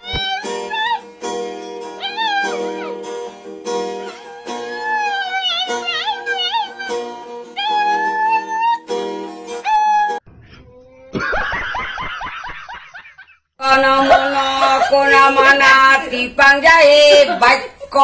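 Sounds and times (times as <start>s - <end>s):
puppy howling: 0.0s - 1.0s, 2.0s - 3.1s, 4.0s - 8.9s, 9.6s - 11.1s
strummed acoustic guitar: 0.1s - 4.8s.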